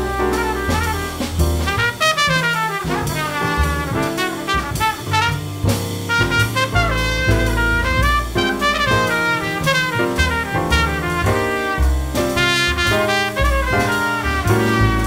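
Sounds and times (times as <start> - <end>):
double bass: 0.0 - 15.0
drums: 0.0 - 15.0
piano: 0.0 - 15.0
trumpet playing quick runs: 0.0 - 15.0.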